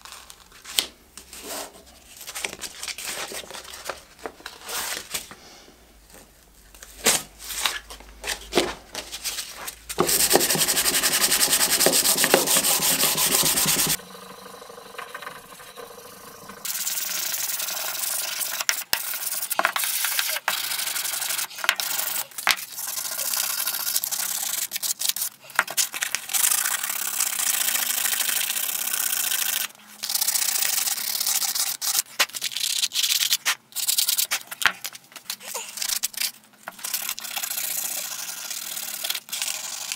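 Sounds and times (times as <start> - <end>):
sandpaper sheet rustling: 7.2 - 14.0
sandpaper rubbing on wood: 10.0 - 14.0.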